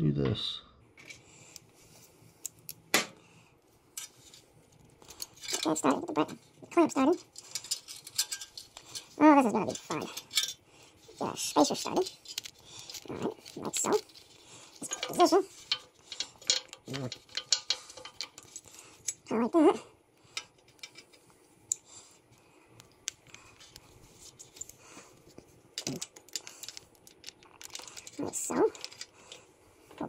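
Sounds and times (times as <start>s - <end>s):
metal hardware clinking: 7.3s - 10.6s, 14.8s - 19.2s.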